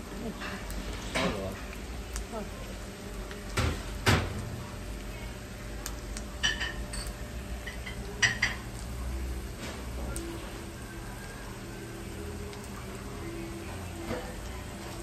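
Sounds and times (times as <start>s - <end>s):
metal clinking on frying pan: 6.4s - 8.7s.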